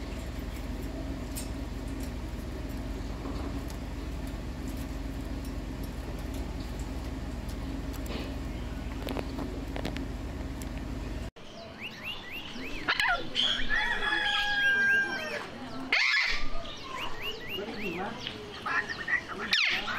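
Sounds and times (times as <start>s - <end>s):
steady low hum: 0.0s - 13.4s
birds chirping and whistling: 11.0s - 19.9s
bird squawks: 11.8s - 19.9s.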